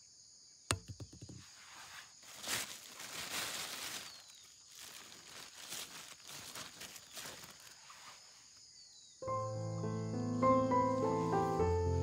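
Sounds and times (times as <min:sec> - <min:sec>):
plastic bag rustling: 0:01.6 - 0:08.3.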